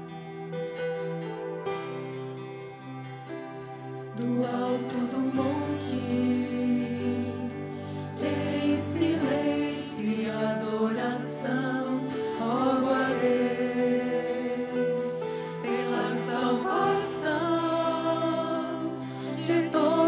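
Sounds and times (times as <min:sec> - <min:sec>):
acoustic guitars: 0:00.0 - 0:20.0
women singing a hymn: 0:04.2 - 0:20.0.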